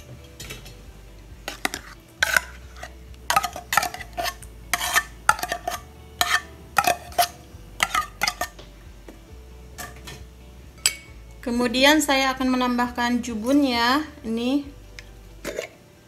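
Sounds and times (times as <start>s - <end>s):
spoon scraping and clinking metal: 1.4s - 8.6s, 9.8s - 11.2s.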